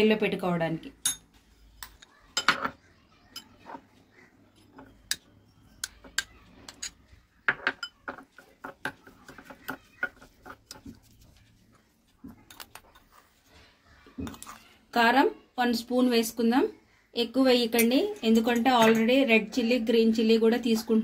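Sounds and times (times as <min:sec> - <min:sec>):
spoon clinking against glass bowl: 0:01.0 - 0:02.7, 0:04.7 - 0:08.2, 0:17.7 - 0:19.3.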